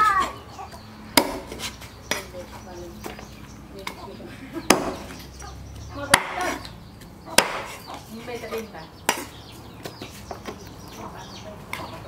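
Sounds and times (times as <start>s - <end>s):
cleaver chopping on wooden block: 1.2s - 2.3s, 4.6s - 5.2s, 6.1s - 6.7s, 7.3s - 7.9s.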